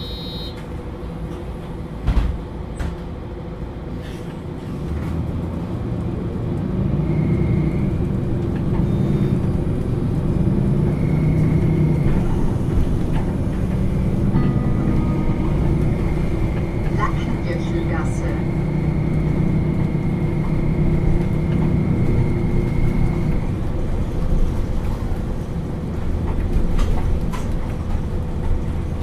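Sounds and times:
bus diesel engine idling: 0.0 - 6.5, 7.6 - 29.0.

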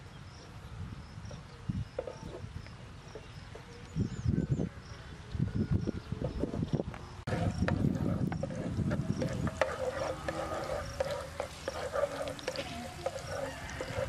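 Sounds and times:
spatula scraping a pan: 7.3 - 14.0
garlic frying in a pan: 10.8 - 14.0.

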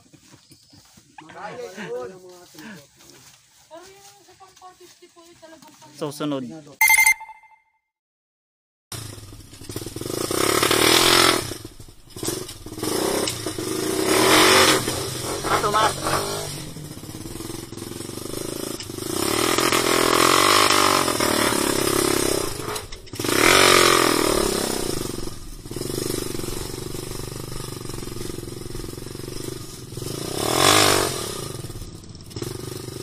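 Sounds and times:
motorcycle engine revving: 8.9 - 33.0.

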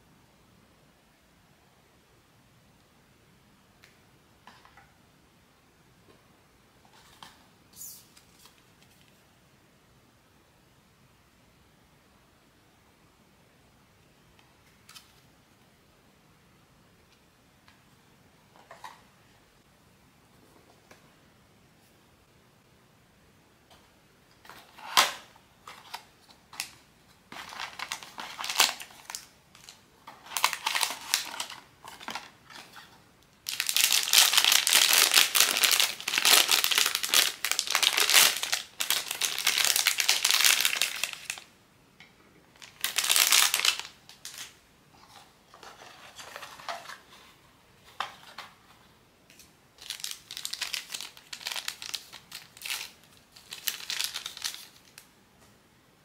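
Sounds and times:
packaging crinkling and rustling: 24.4 - 41.5, 42.6 - 47.2, 49.8 - 55.1.

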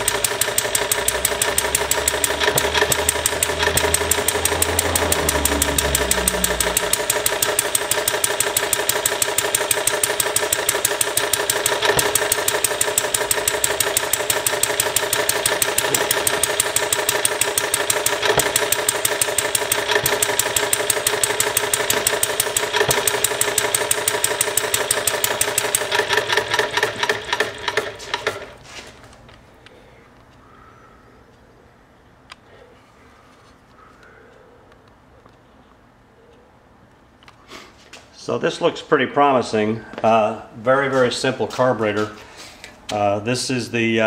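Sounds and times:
small model engine running: 0.0 - 28.5.

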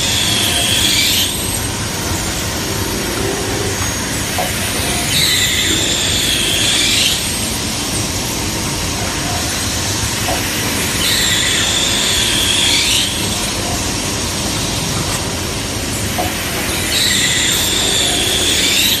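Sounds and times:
cutting tools whining: 0.0 - 19.0
machine mechanical drone: 0.0 - 19.0.

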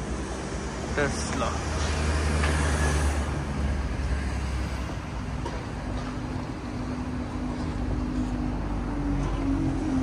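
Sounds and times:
rush of road traffic: 0.0 - 10.0.

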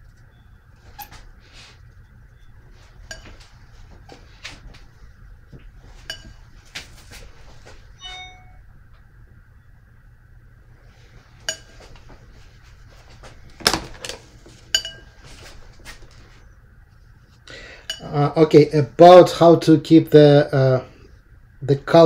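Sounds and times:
brush clinking against palette and jar: 14.7 - 15.1.

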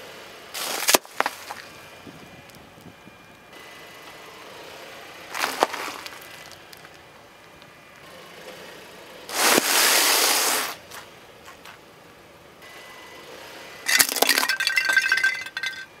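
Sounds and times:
cornflakes crunching under tyre: 0.6 - 1.7, 5.3 - 7.0, 9.3 - 10.7, 13.9 - 15.8
plastic cracking under tyre: 0.6 - 1.7, 5.4 - 7.0.

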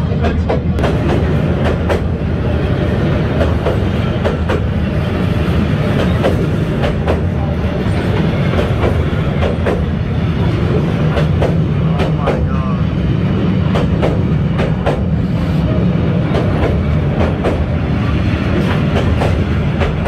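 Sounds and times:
train wheels rumbling on rails: 0.0 - 20.0
wheels clacking over rail joints: 18.5 - 20.0.

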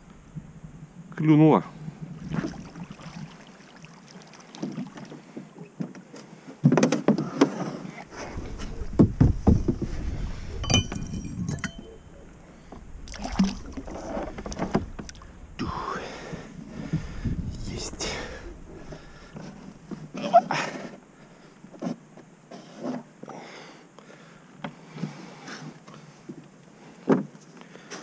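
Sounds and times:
water splashes: 2.0 - 5.7, 7.8 - 20.5
knocks in a small boat: 4.7 - 7.6, 8.5 - 11.6
wind rumble on microphone: 7.9 - 20.3.

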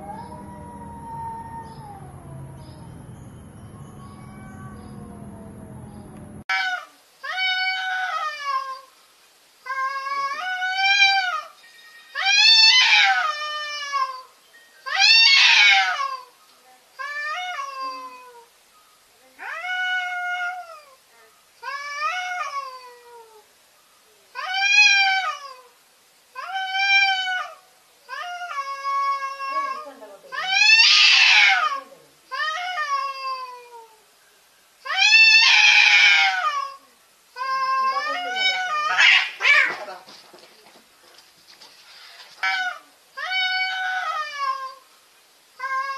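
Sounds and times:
cats yowling: 0.0 - 2.9, 3.8 - 8.9, 9.6 - 14.3, 14.9 - 16.4, 17.0 - 18.5, 19.4 - 21.0, 21.6 - 23.5, 24.3 - 25.8, 26.4 - 34.0, 34.8 - 39.8, 42.3 - 44.9, 45.6 - 45.9.

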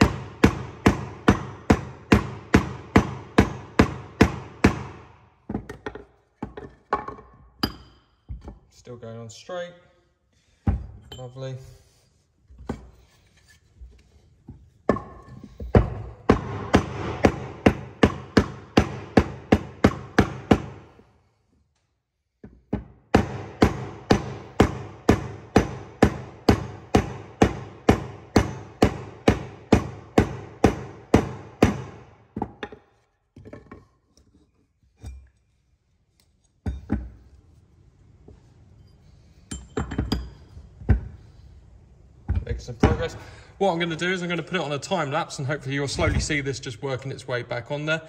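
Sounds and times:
hammer striking wooden block: 0.0 - 8.5, 14.9 - 21.0, 22.4 - 32.9.

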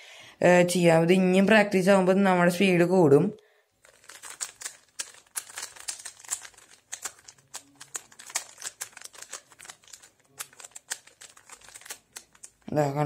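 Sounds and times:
puzzle cube clacking: 3.8 - 12.8.

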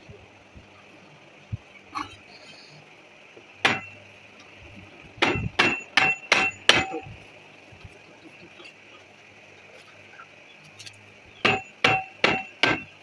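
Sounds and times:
hammer blows with metallic ring: 3.6 - 4.0, 5.2 - 7.2, 11.4 - 13.0.

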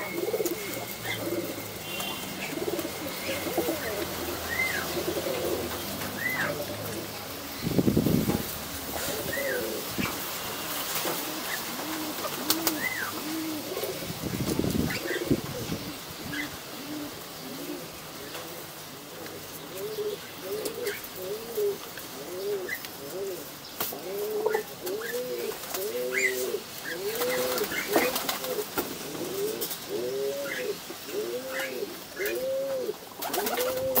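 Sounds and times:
pigeons cooing: 0.0 - 34.0
wings flapping: 10.9 - 13.0, 27.0 - 29.1, 33.2 - 34.0.

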